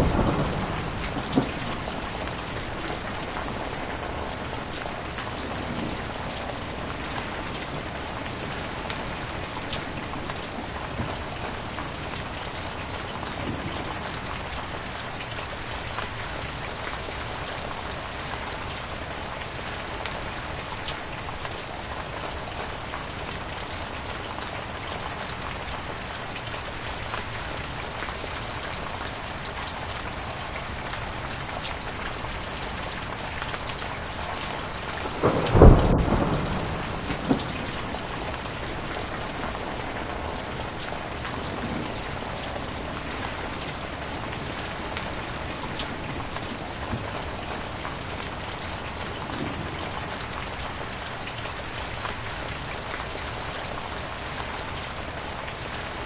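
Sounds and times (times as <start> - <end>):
small thunder crack: 0.0 - 3.4, 35.1 - 39.1
thunderclap rumbling: 0.0 - 9.1, 34.5 - 47.8
heavy rain: 0.0 - 56.0.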